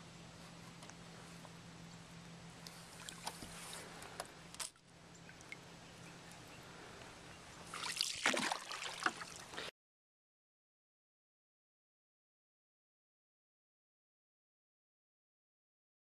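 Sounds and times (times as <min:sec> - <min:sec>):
faint steady hum: 0:00.0 - 0:09.7
water sloshing and trickling: 0:02.7 - 0:06.5, 0:07.6 - 0:09.7.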